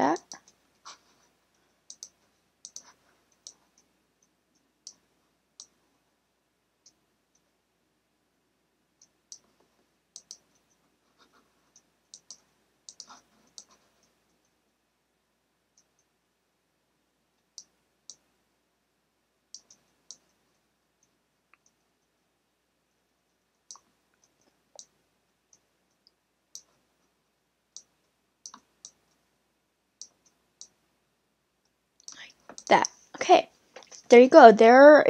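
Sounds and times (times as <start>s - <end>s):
computer mouse clicks: 0.2s - 0.9s, 1.8s - 5.8s, 9.0s - 10.8s, 11.7s - 14.2s, 17.4s - 18.3s, 19.5s - 20.4s, 23.6s - 26.7s, 27.7s - 29.2s, 30.0s - 30.8s, 32.0s - 32.9s.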